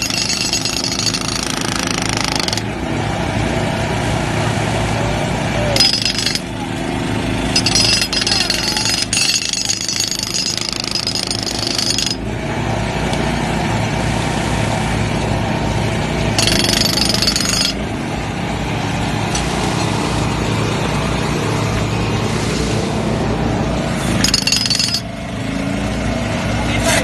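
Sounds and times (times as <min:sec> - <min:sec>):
hydraulic breaker hammering asphalt: 0:00.0 - 0:02.8, 0:05.8 - 0:12.3, 0:16.3 - 0:18.0, 0:24.0 - 0:25.2.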